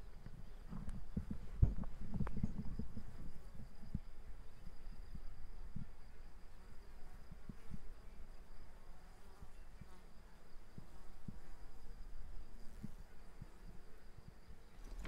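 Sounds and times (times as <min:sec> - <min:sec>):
soft thumps: 0:00.7 - 0:03.0.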